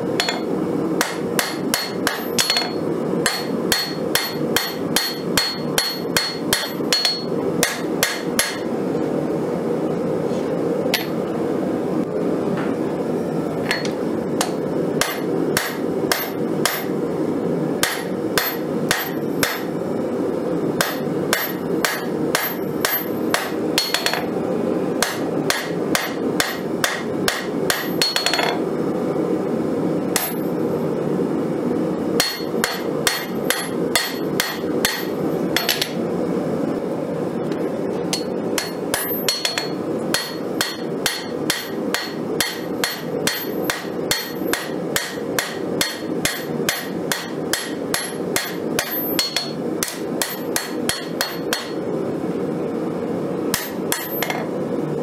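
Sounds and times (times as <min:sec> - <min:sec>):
hammer ringing on anvil: 0:00.2 - 0:08.7, 0:17.8 - 0:19.7, 0:20.8 - 0:24.3, 0:25.0 - 0:28.6, 0:32.2 - 0:36.0, 0:38.1 - 0:51.8, 0:53.6 - 0:54.4.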